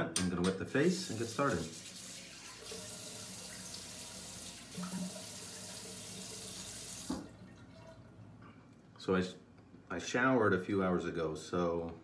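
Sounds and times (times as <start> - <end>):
bathroom tap running: 0.8 - 8.2.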